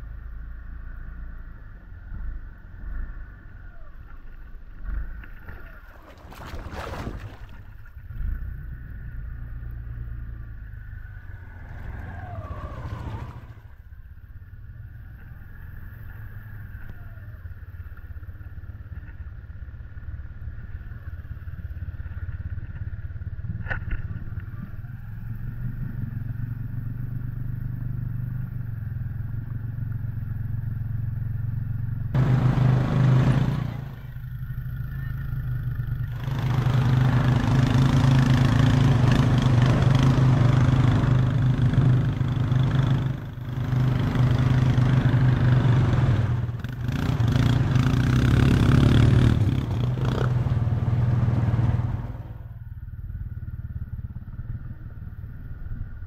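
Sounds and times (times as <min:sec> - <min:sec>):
engine running: 0:00.0 - 0:56.0
water churning and splashing: 0:04.9 - 0:08.2.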